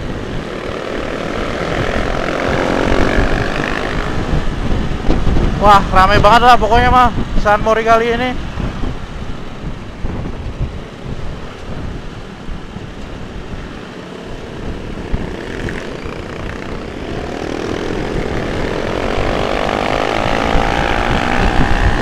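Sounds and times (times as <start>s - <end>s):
motorcycle engine: 0.0s - 5.6s, 13.1s - 22.0s
wind rumbling on microphone: 0.0s - 22.0s.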